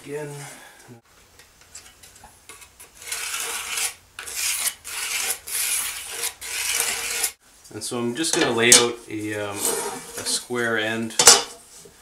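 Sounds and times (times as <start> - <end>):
pencil scratching along metal: 3.0 - 7.4.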